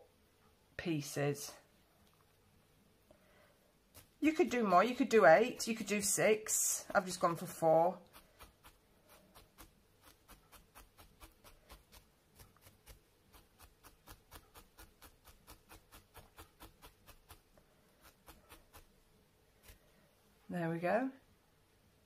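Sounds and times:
felting needle poking: 3.9 - 19.9.

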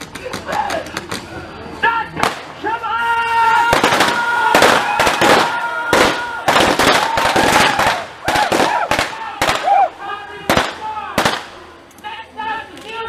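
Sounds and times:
gunshots: 2.2 - 2.6, 3.6 - 9.9, 10.5 - 11.6.

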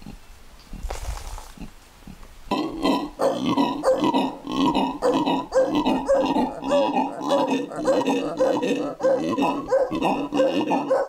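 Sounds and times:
monkey howling with roaring grunts: 2.5 - 11.0.

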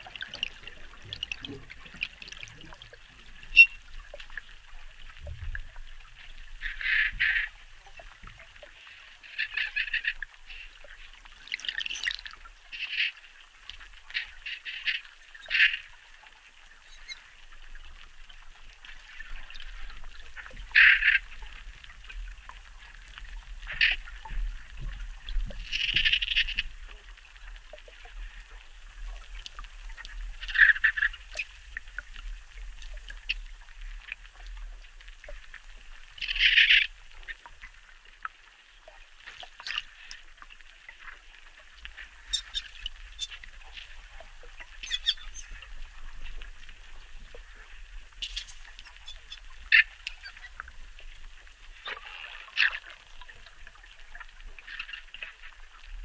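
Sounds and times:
dolphins calling: 3.4 - 3.9, 36.2 - 37.4, 42.2 - 43.8, 44.6 - 45.6, 48.2 - 50.7.

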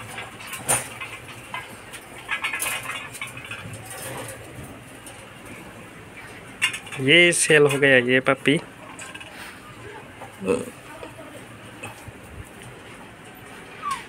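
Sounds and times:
puppies scrabbling in wire cage: 0.0 - 10.3.

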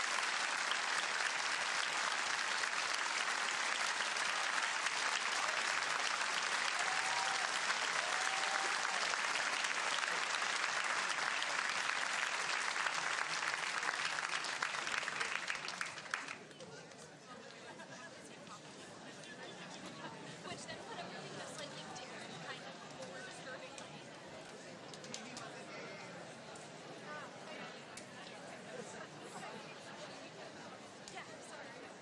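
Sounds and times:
audience applauding: 0.0 - 16.4.

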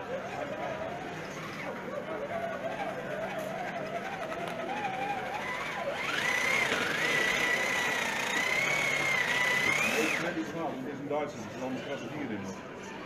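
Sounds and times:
model tank drive whining: 1.8 - 10.3.

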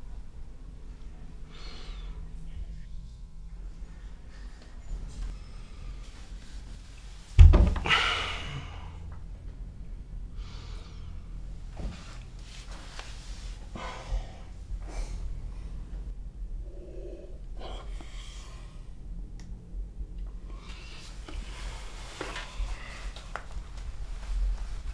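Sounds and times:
heavy breathing and sighs: 1.1 - 2.7, 7.8 - 9.2, 13.4 - 19.0, 20.4 - 23.4
low thud: 7.4 - 8.0
man gasping: 7.8 - 9.1.

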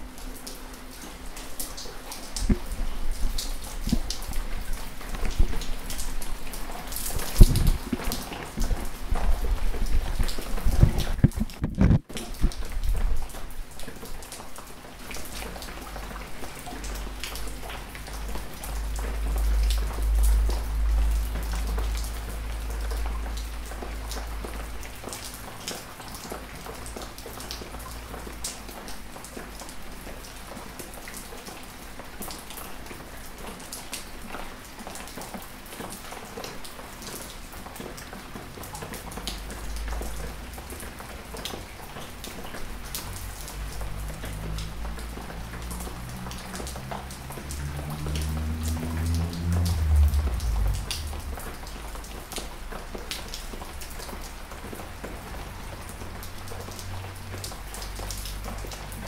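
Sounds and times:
raindrops tapping: 0.0 - 32.6, 33.3 - 59.0
rain hissing: 39.3 - 59.0
low rumble: 47.6 - 52.6.

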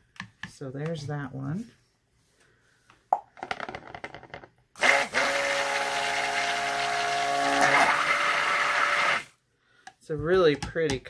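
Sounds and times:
stick blender running: 4.8 - 9.3.

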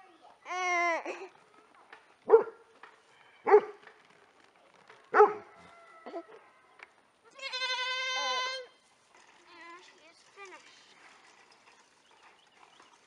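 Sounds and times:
goats bleating: 7.3 - 8.7.

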